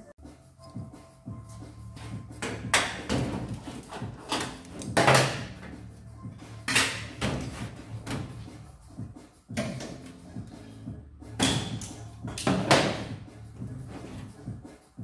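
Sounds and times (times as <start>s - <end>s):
metal clunks and scrapes: 2.0s - 5.7s, 6.4s - 8.5s.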